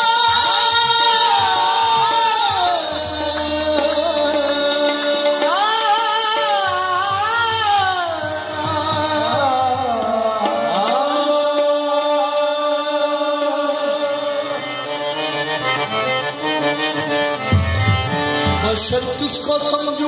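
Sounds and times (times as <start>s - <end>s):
person singing: 0.0s - 14.6s
harmonium melody: 0.0s - 20.0s.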